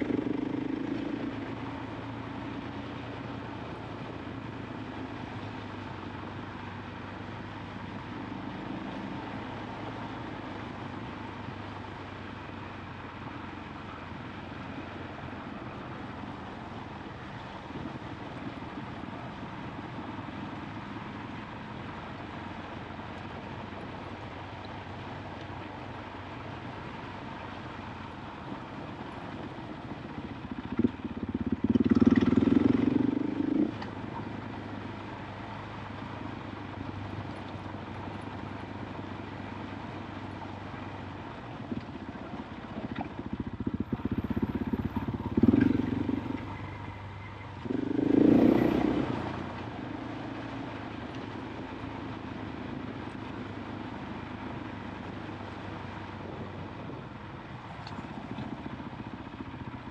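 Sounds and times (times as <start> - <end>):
motorcycle engine revving: 0.0 - 1.6, 30.5 - 34.1, 41.7 - 50.7.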